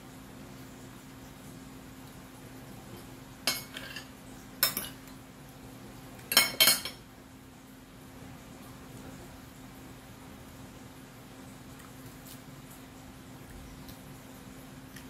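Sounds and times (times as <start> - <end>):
cutlery clinking on plate: 3.5 - 5.0, 6.3 - 7.0.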